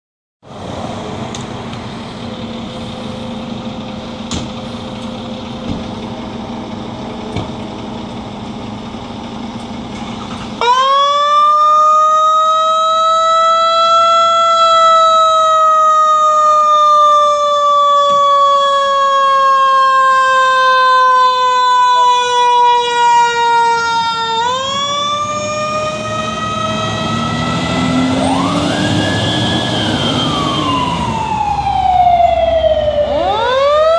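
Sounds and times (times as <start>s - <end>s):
fire engines idling: 0.5s - 33.9s
mechanical siren howling: 10.6s - 33.9s
sweeping siren: 10.6s - 33.9s.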